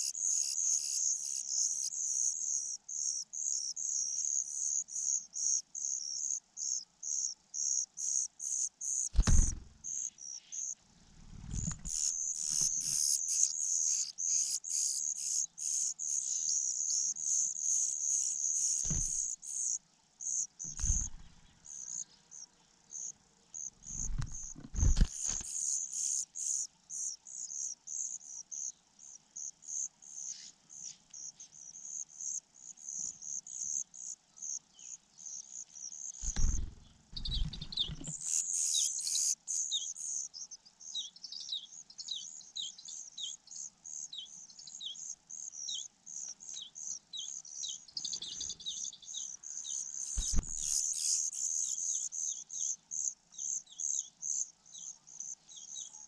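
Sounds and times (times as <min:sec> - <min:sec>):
nestling birds chirping: 0:00.0 - 0:56.0
dull low thuds: 0:09.2 - 0:09.9, 0:18.8 - 0:19.3, 0:36.2 - 0:38.1, 0:50.2 - 0:50.7.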